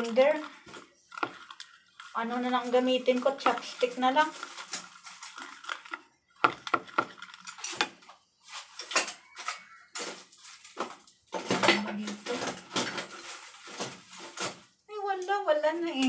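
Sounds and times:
chopsticks beating batter in bowl: 0.0 - 7.9.

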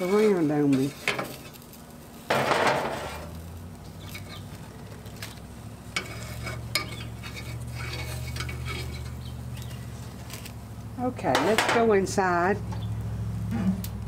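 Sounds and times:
low steady hum: 0.0 - 14.0
mushrooms sizzling on grill: 0.0 - 14.0
metal tongs clicking on grates: 6.0 - 9.7.

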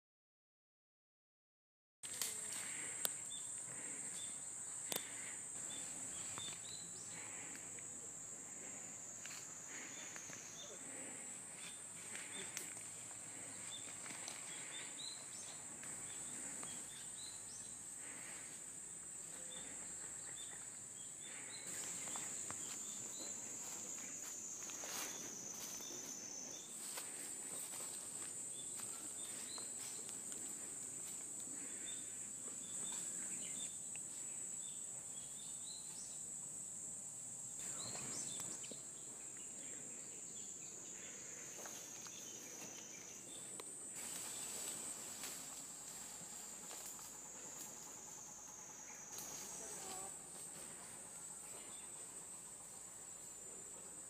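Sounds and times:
high-pitched insect drone: 2.1 - 54.0
footsteps crunching dry leaves: 21.7 - 30.0.

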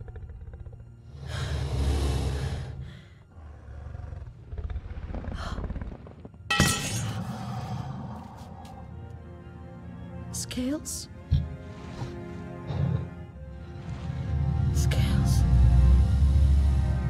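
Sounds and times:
creature breathing: 0.0 - 6.2, 7.2 - 9.1, 11.4 - 14.8.

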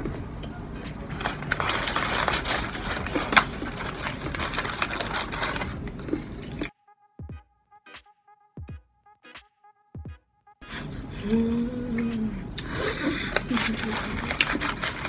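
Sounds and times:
paper wrappers crinkling: 0.9 - 6.7, 13.1 - 15.0
crunching fried chicken chewing: 1.0 - 6.7, 13.1 - 15.0.

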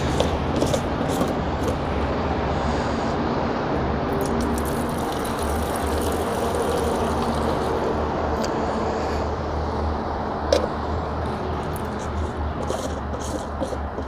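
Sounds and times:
liquid trickling into plastic jar: 4.2 - 7.9.

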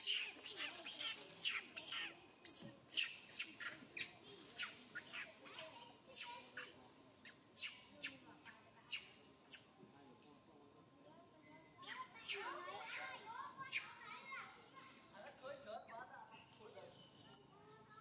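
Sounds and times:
high-pitched chirping calls: 0.0 - 9.7, 12.2 - 14.6.

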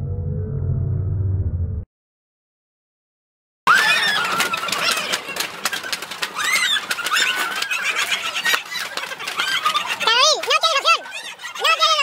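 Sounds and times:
swim fins slapping on tiles: 3.7 - 11.0
people shouting and laughing: 3.7 - 12.0.

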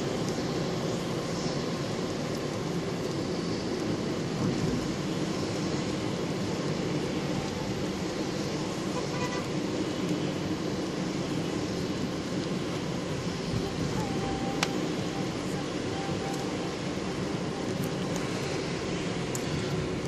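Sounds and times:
tyres on wet asphalt: 0.0 - 20.0
faint car horn toot: 9.0 - 9.5.

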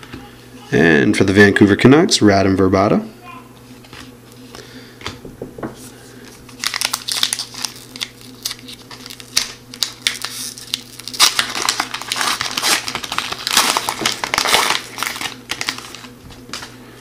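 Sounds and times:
wrapper crinkling as torn open: 6.5 - 16.7.

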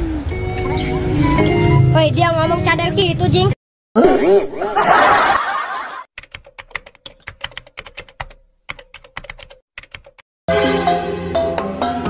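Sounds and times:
music with sustained notes: 0.0 - 2.8, 10.5 - 12.0
keyboard typing clicks: 6.2 - 10.2.

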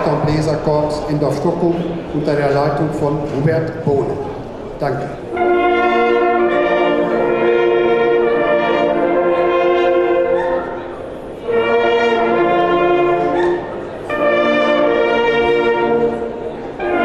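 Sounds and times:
hunting horns playing in harmony: 5.2 - 17.0.

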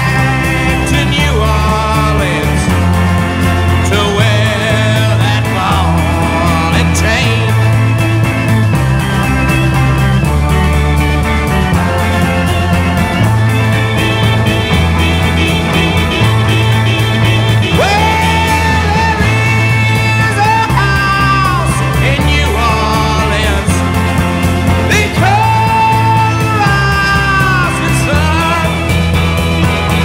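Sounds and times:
person singing: 0.0 - 8.0, 13.9 - 30.0
rock song with bass and drums: 0.0 - 30.0.

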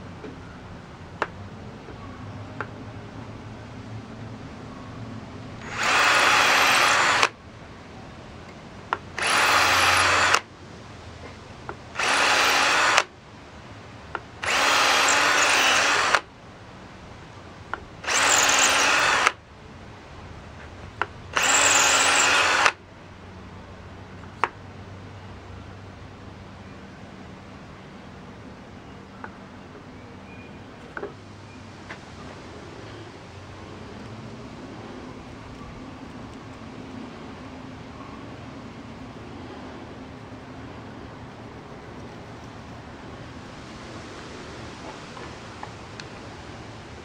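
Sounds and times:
cordless drill boring into stone: 5.6 - 7.4, 9.2 - 10.5, 12.0 - 13.1, 14.4 - 16.3, 18.0 - 19.4, 21.3 - 22.8.

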